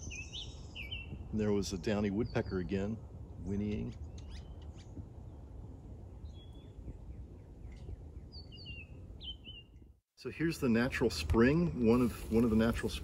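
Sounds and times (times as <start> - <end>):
bird whistling song: 0.0 - 1.2, 4.0 - 5.4, 6.2 - 9.8.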